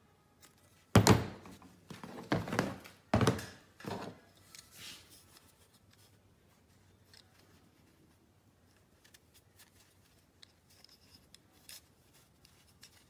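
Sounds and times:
plastic parts knocking on a workbench: 1.0 - 4.2.

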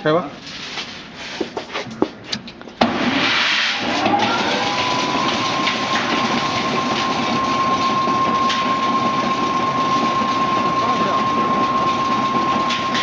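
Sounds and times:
spinning drum rushing: 2.9 - 13.0
motor whine: 3.8 - 13.0.

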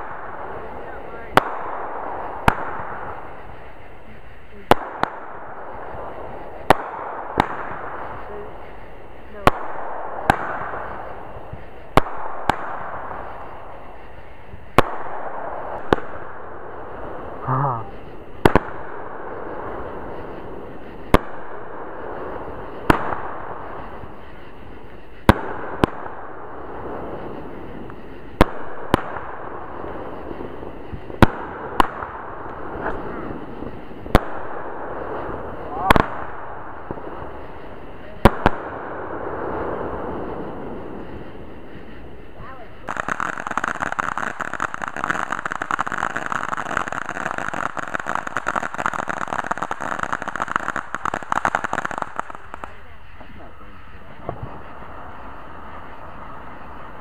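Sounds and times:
fireworks bangs: 0.0 - 57.0
steady hiss: 0.0 - 57.0
fireworks pops: 30.0 - 38.8, 39.9 - 57.0.

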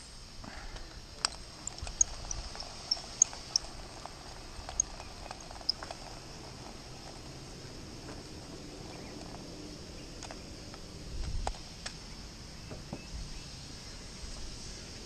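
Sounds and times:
high-pitched insect drone: 1.0 - 12.6.

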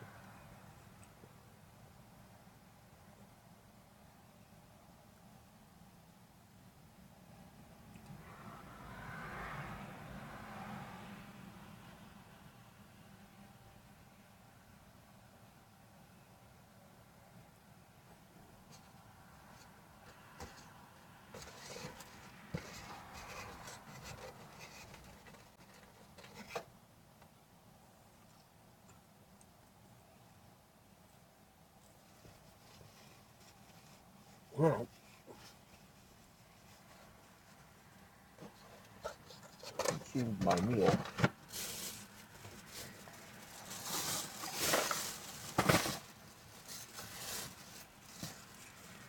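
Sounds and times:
faint rustling of things handled: 17.5 - 49.0.

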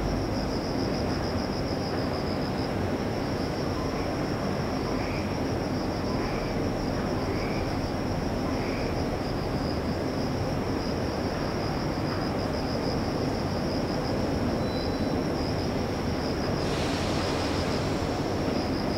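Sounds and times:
insects trilling: 0.0 - 18.9.

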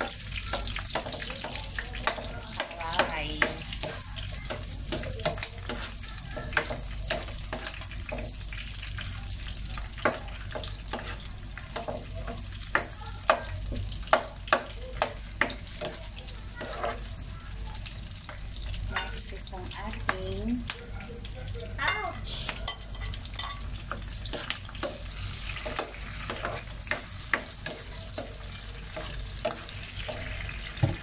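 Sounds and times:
spatula scraping pan: 0.0 - 8.4, 10.0 - 17.4, 22.3 - 30.8
onions sizzling in oil: 0.0 - 31.0.

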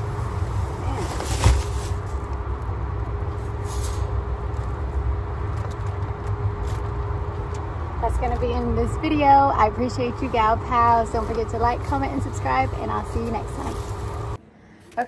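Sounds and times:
steady low rumble: 0.0 - 14.4
plastic bags rustling: 0.2 - 7.0, 10.3 - 14.4.

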